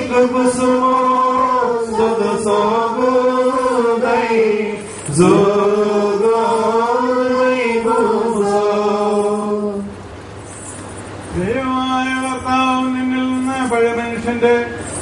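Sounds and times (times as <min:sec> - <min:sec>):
slow liturgical chant: 0:00.0 - 0:10.4.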